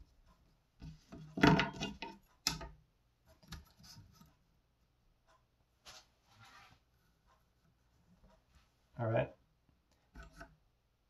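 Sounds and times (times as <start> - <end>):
knife scraping on metal table: 10.2 - 10.5.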